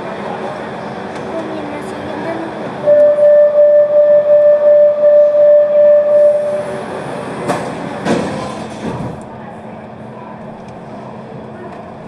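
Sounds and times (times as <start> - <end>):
train door warning tone: 2.8 - 6.7.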